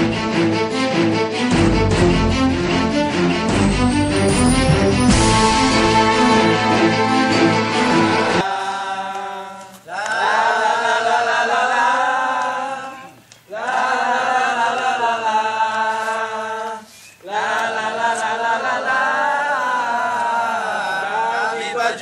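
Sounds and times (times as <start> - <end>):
group of people chanting: 6.0 - 22.0.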